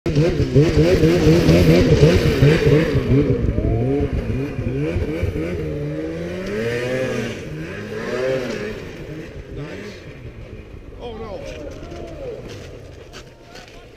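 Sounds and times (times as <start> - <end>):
snowmobile engine revving: 0.1 - 13.9.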